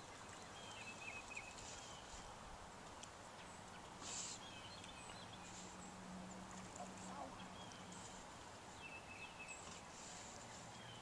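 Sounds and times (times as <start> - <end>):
short hiss: 4.0 - 4.4.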